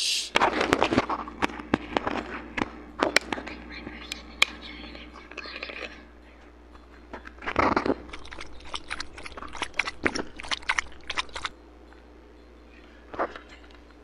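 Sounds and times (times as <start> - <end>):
gulping soda: 7.4 - 11.5.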